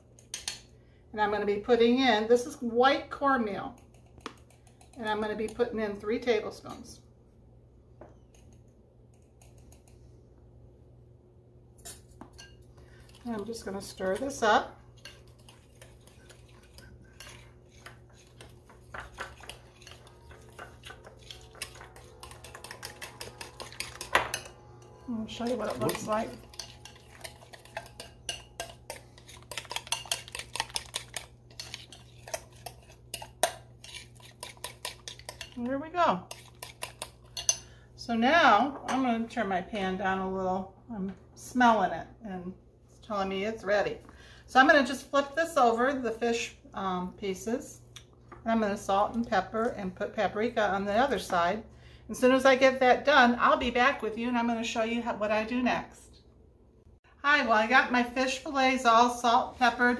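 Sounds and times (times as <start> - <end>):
fork clinking against glass bowl: 18.9 - 35.6, 36.3 - 37.7.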